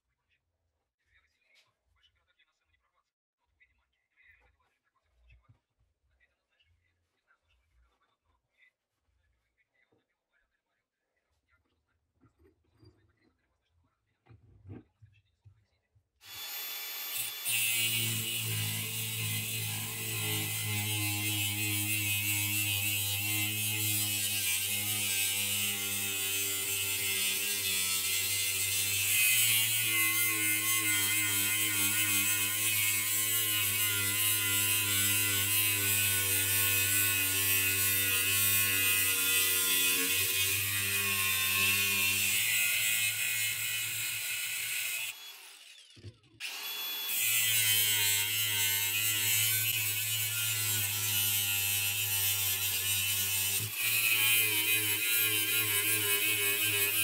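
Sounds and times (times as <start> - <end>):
angle grinder cutting steel: 16.2 - 57.0.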